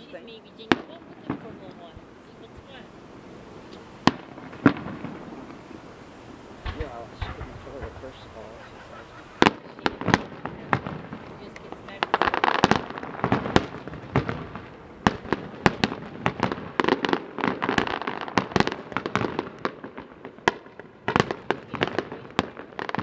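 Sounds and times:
fireworks bursting: 0.0s - 23.0s.

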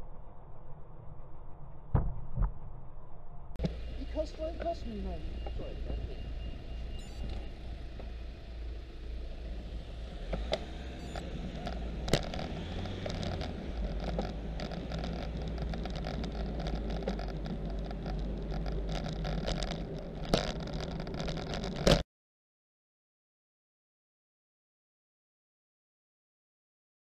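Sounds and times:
wind rumble: 0.0s - 22.0s
tyre-on-road noise: 3.5s - 22.0s.

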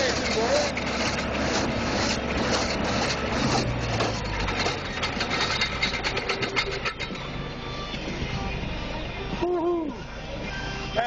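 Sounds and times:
baler mechanical clatter: 0.0s - 7.6s
tractor engine running: 0.0s - 10.5s.

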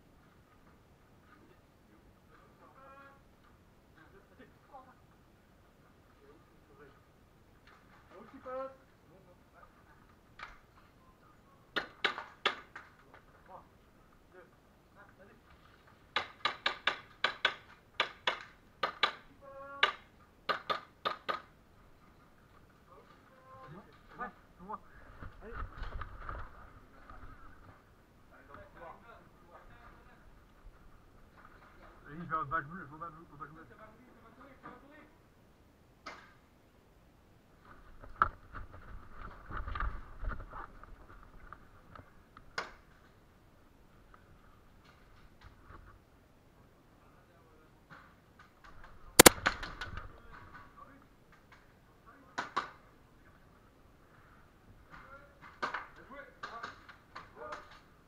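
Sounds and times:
airsoft gun firing: 49.2s - 49.6s
sharp click: 49.2s - 49.6s
small crackles: 54.2s - 58.0s.

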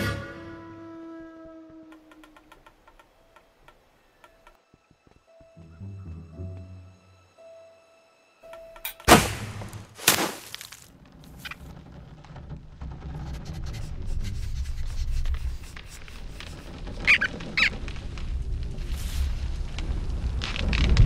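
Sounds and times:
rustling noise: 9.7s - 21.0s
short high squeaks: 16.3s - 17.8s.

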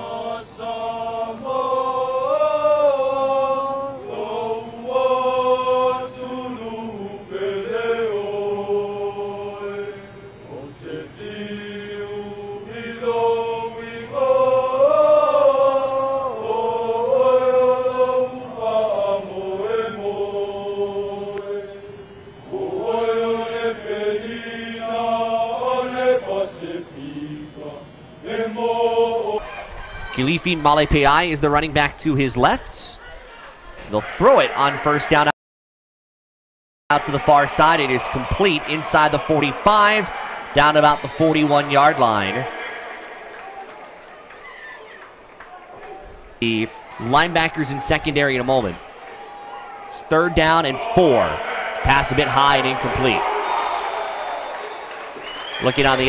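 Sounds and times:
men singing in unison: 0.0s - 29.6s.

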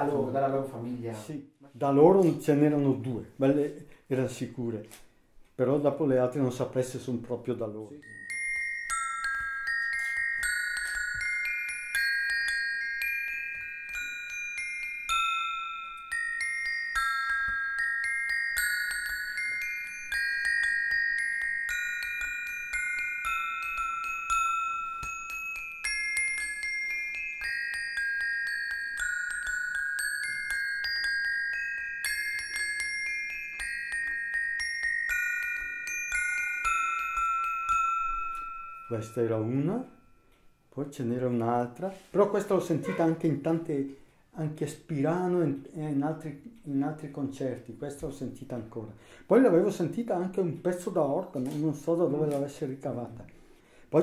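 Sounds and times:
metallophone melody: 8.0s - 40.8s.

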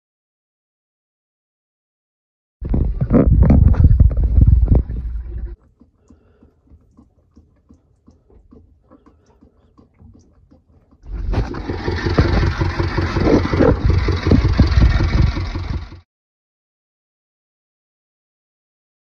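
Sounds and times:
faint clicks: 5.3s - 11.1s
diesel engine knocking: 11.1s - 16.0s.

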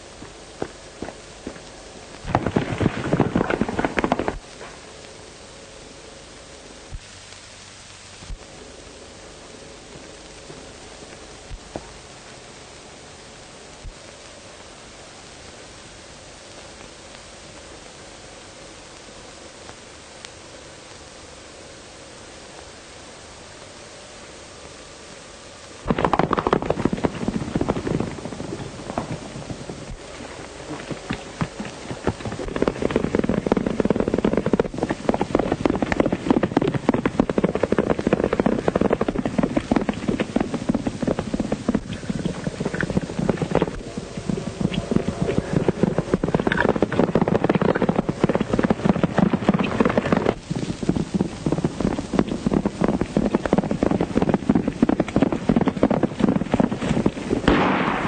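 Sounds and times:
horses galloping: 0.0s - 5.1s, 25.8s - 58.0s.

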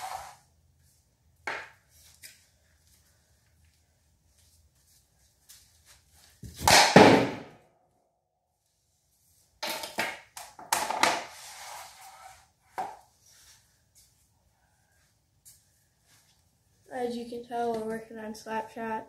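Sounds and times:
hockey stick hitting puck: 1.5s - 1.8s, 6.4s - 7.6s, 9.6s - 11.4s.

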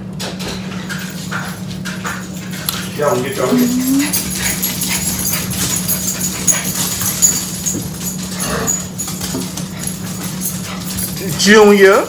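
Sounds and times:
dogs whimpering: 2.9s - 11.9s.

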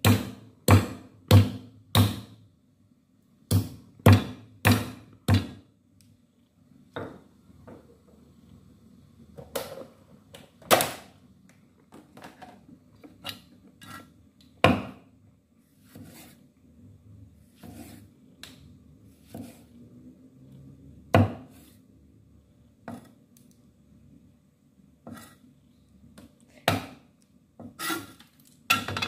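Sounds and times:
knife chopping on wooden block: 0.0s - 2.3s, 3.5s - 5.6s, 14.6s - 15.0s.

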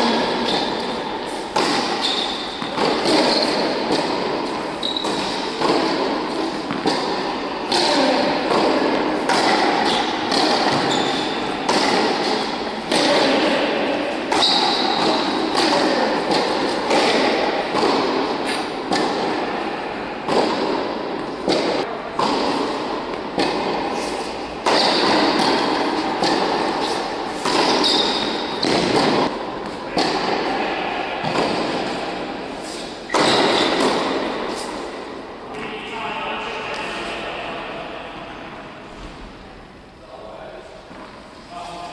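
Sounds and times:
tennis ball bouncing on hard court: 0.1s - 19.6s, 20.2s - 24.0s, 24.6s - 30.5s, 31.2s - 34.7s
tennis ball struck by rackets: 0.1s - 19.6s, 20.2s - 30.5s, 31.2s - 34.8s.

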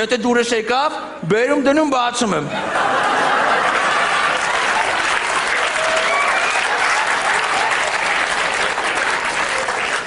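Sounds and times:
audience laughing: 2.5s - 5.7s, 6.3s - 10.0s
audience applauding: 3.2s - 10.0s.

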